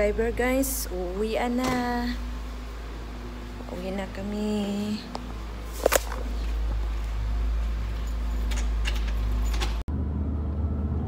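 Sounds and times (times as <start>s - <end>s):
phone handling against clothing: 5.1s - 6.6s.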